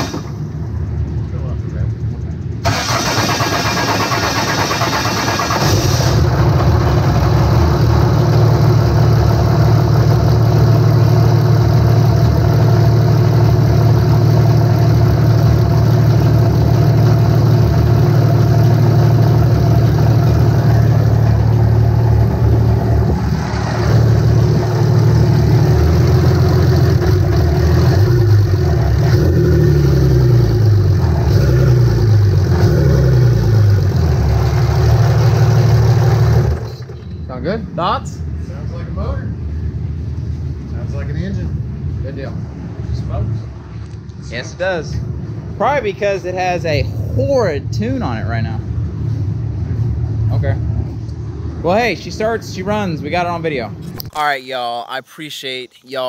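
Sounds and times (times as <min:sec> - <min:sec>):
diesel engine idling and revving: 0:00.0 - 0:37.6.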